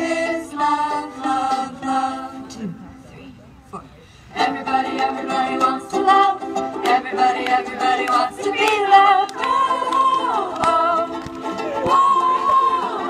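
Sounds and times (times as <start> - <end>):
voices singing in harmony: 0.0 - 2.7, 4.3 - 13.0
ukulele strumming: 4.4 - 13.0.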